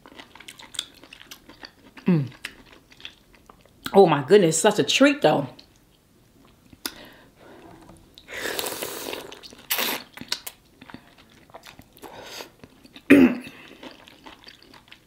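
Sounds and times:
wet chewing: 0.0s - 3.7s, 8.1s - 15.0s.

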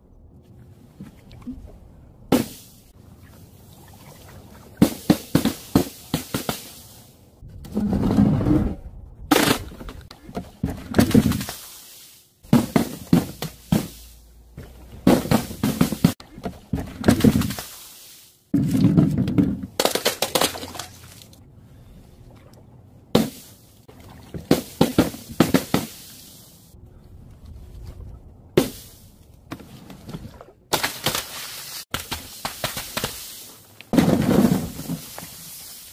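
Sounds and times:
balloons bursting on nails: 31.9s - 33.5s.

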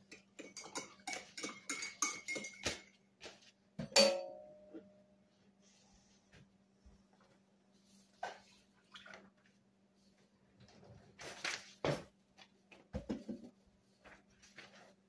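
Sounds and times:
spoon scraping a dish: 0.2s - 2.6s.

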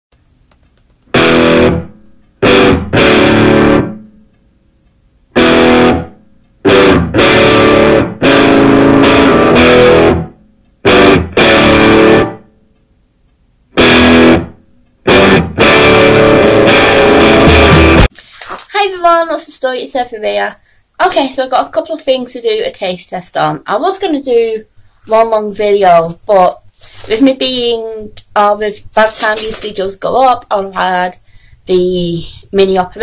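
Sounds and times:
distorted electric guitar chords: 1.1s - 4.3s, 5.3s - 12.7s, 13.7s - 18.1s.

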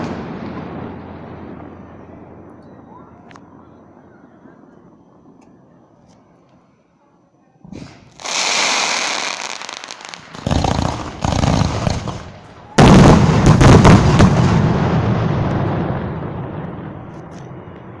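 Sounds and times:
firework crackling: 0.0s - 2.6s, 7.7s - 18.0s
firework booms: 0.0s - 5.0s, 7.6s - 18.0s
firework launch hissing: 7.6s - 14.0s.

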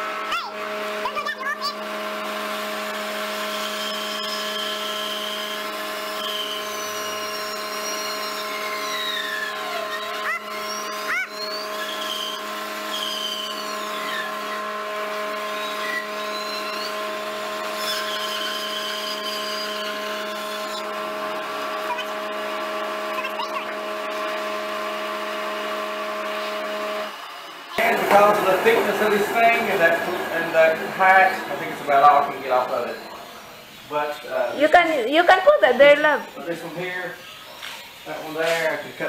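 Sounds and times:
bandsaw motor hum and whine: 0.0s - 39.0s
high squeal of blade cutting wood: 3.6s - 5.4s, 6.2s - 14.6s, 15.5s - 17.0s, 17.7s - 20.9s.

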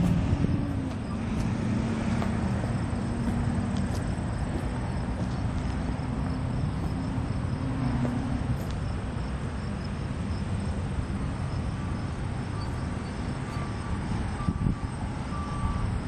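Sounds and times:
faint repeated beeps: 11.8s - 16.0s.

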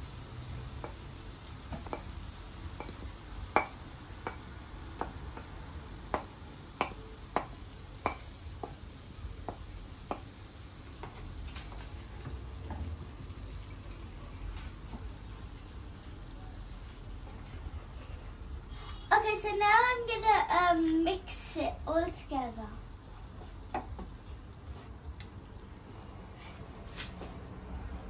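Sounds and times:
pan sizzling: 0.0s - 18.5s, 19.1s - 24.7s
spatula stirring vegetables in a pan: 0.0s - 21.2s, 23.1s - 25.2s
spatula knocking on a plate: 6.1s - 8.8s.

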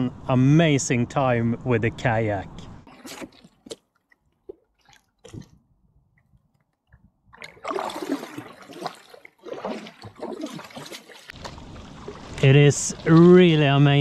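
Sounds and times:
water splashing around kayak: 2.8s - 5.7s, 7.3s - 14.0s.

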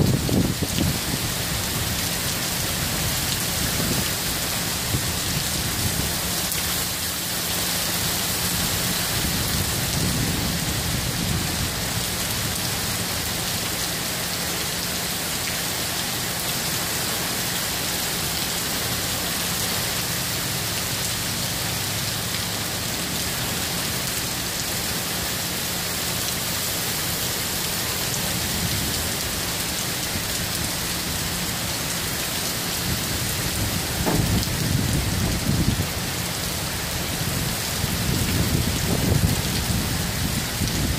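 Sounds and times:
heavy rain pouring: 0.0s - 40.9s
thunder rumbling: 32.8s - 36.0s.

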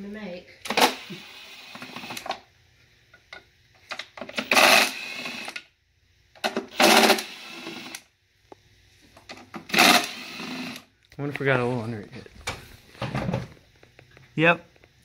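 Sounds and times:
handheld power tool running: 0.6s - 2.4s, 4.2s - 5.7s, 6.4s - 8.1s, 9.5s - 10.9s.

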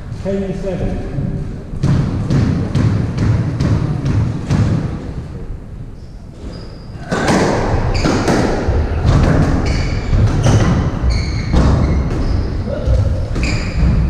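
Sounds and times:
squash ball hitting rackets and walls: 1.7s - 5.4s, 6.4s - 14.0s
shoes squeaking on wooden floor: 6.0s - 14.0s.

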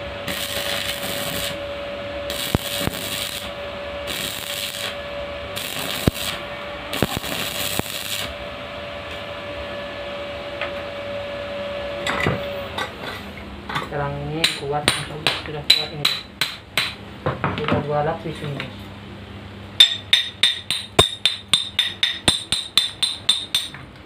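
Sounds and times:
arc welding crackling: 0.0s - 8.4s
steady hum: 0.0s - 24.0s.

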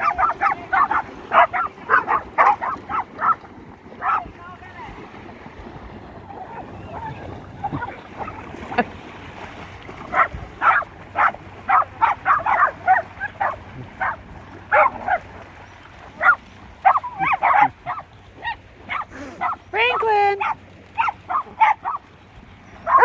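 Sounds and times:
dog barking sharply: 10.1s - 15.2s, 16.2s - 18.0s.

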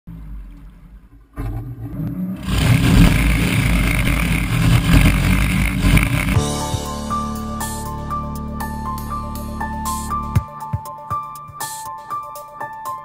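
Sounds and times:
wind: 0.1s - 6.3s
boat engine at speed: 1.4s - 6.5s
rushing water: 2.3s - 6.4s.

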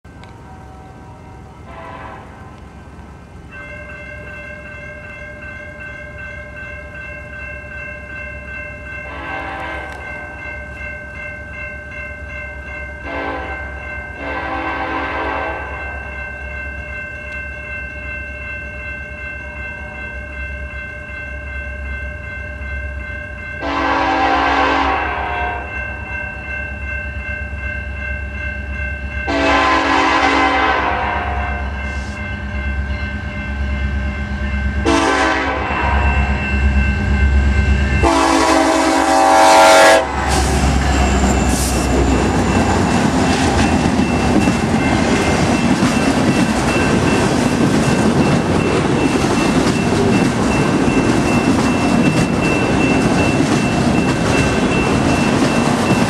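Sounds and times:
train rumble: 0.0s - 56.0s
locomotive air horn blasts: 1.7s - 2.5s, 9.1s - 10.0s, 13.0s - 13.6s, 14.2s - 15.8s, 23.6s - 25.7s, 29.3s - 32.2s, 34.8s - 36.3s, 38.0s - 40.7s.

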